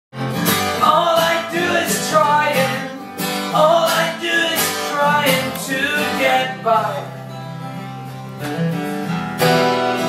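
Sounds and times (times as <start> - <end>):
acoustic guitar strumming: 0.2 - 10.0
person singing: 0.8 - 7.2.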